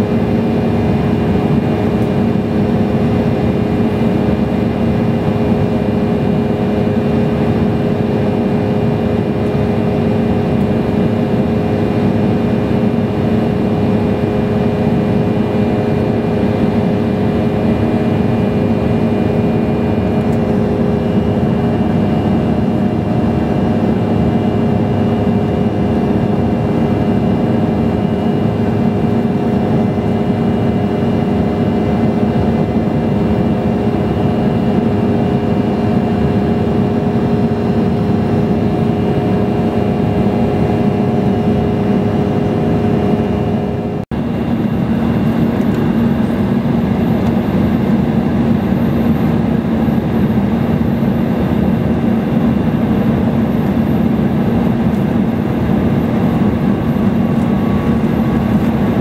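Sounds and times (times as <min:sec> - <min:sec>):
jet engine roar: 0:00.0 - 0:59.0
cabin hum: 0:44.0 - 0:59.0
rushing air: 0:52.4 - 0:59.0.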